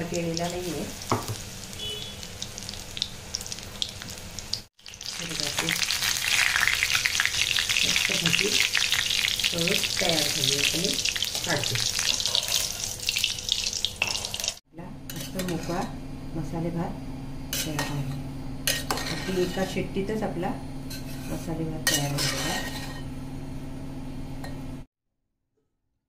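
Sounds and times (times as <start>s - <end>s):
deep-frying sizzle and crackle: 0.0s - 14.6s.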